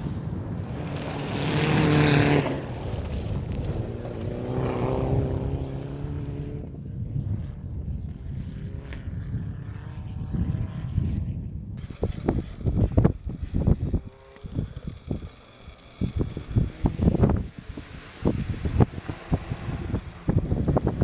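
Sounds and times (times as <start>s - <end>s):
gravel and tyre hiss: 0.0s - 4.2s, 11.8s - 21.0s
rally car engine at full throttle: 0.0s - 21.0s
wind noise: 0.0s - 21.0s.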